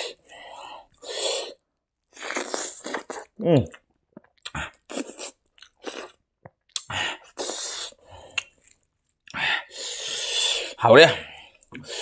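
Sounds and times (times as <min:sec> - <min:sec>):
man chewing with wet smacking: 0:02.2 - 0:07.7, 0:08.3 - 0:09.4.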